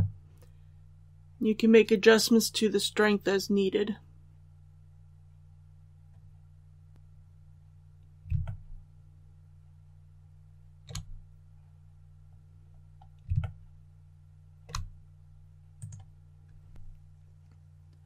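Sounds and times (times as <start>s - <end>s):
low electrical hum: 0.0s - 18.0s
mouse and keyboard clicks: 8.3s - 8.6s, 10.9s - 11.2s, 13.0s - 13.6s, 14.7s - 14.9s.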